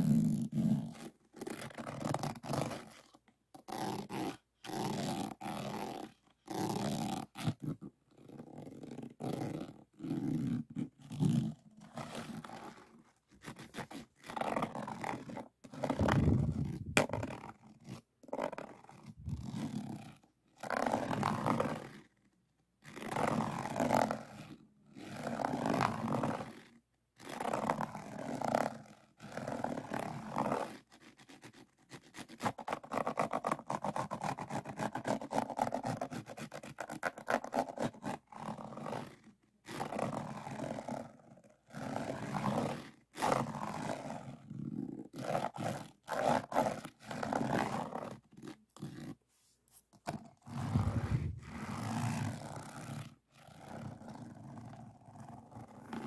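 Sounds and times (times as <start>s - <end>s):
pen scraping over resin beads: 13.6s - 17.5s, 50.1s - 52.0s.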